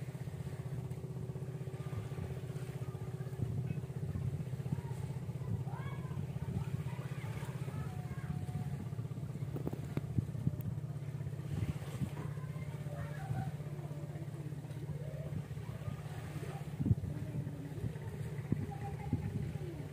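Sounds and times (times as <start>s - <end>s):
small engine throbbing: 0.0s - 19.9s.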